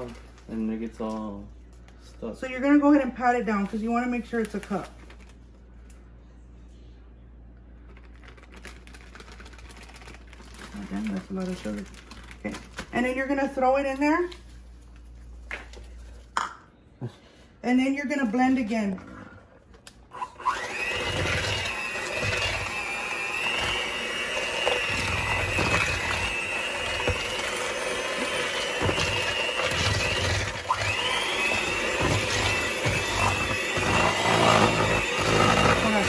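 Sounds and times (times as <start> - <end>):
electric hand mixer whining: 20.2 - 36.0.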